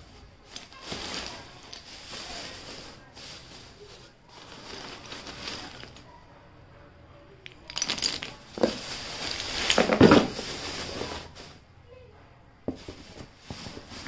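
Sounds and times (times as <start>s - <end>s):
plastic bag rustling: 0.0s - 6.2s, 7.4s - 11.6s, 12.7s - 14.0s
clay biscuits clinking: 0.5s - 6.1s, 7.4s - 11.0s.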